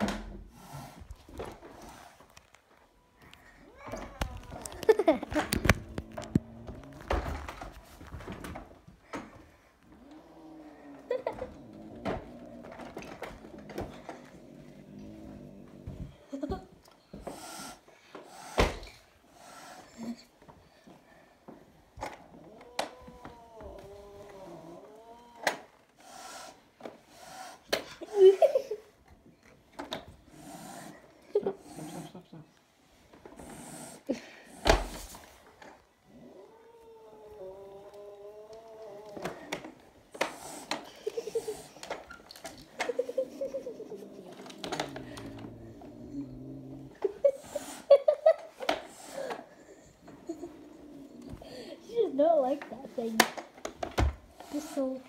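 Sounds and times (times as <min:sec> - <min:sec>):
cat growl-yowl: 0:09.9 - 0:16.0, 0:22.2 - 0:26.5, 0:36.0 - 0:39.6, 0:43.2 - 0:47.8, 0:50.2 - 0:51.7
cat hissing: 0:17.2 - 0:20.1, 0:22.8 - 0:28.1, 0:30.3 - 0:31.0, 0:31.6 - 0:32.2, 0:33.4 - 0:35.3, 0:40.2 - 0:41.8, 0:43.7 - 0:47.9, 0:48.9 - 0:49.7
angry cat yowling and growling: 0:22.3 - 0:25.7, 0:36.0 - 0:39.6.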